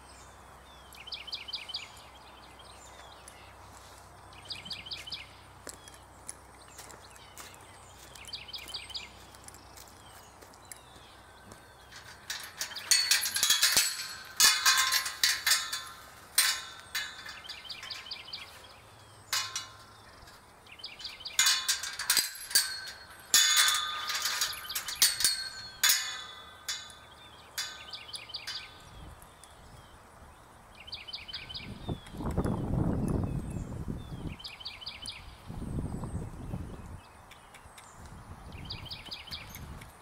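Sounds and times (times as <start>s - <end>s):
metal gate clanking and rattling: 11.3s - 29.0s.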